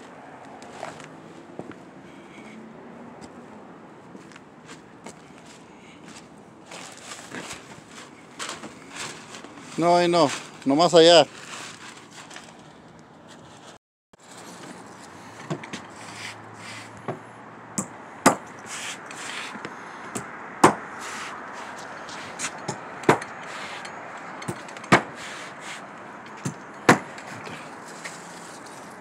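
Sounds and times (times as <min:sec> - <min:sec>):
sharp knocks: 0:19.6 - 0:20.9, 0:22.6 - 0:23.4, 0:24.4 - 0:25.2, 0:26.4 - 0:27.3.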